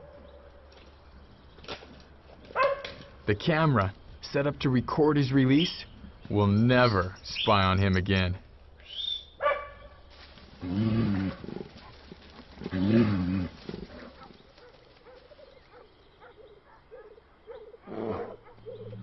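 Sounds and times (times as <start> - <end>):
bear growling: 10.5 - 14.4, 17.6 - 19.0.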